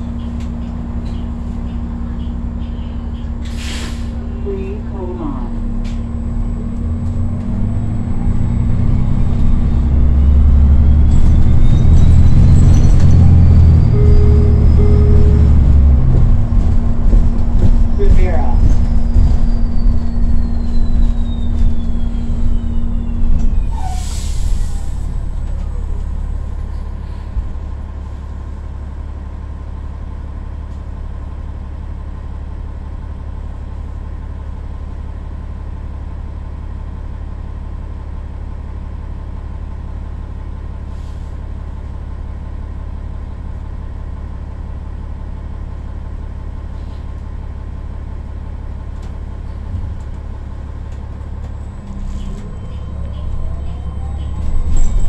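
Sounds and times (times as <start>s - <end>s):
bus engine low rumble: 0.0s - 55.0s
short hiss of air: 3.5s - 4.2s.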